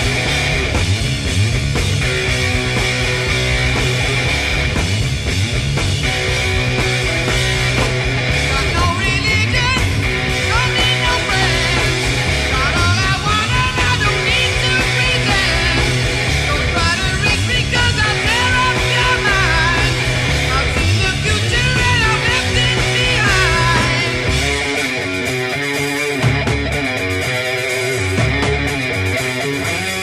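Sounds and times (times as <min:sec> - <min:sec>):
rock band playing: 0:00.0 - 0:30.0
person singing: 0:08.4 - 0:24.7.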